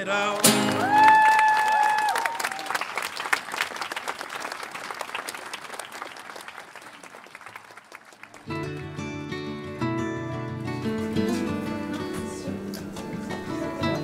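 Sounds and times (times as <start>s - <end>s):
audience applauding: 0.0s - 8.9s
music: 8.4s - 14.0s.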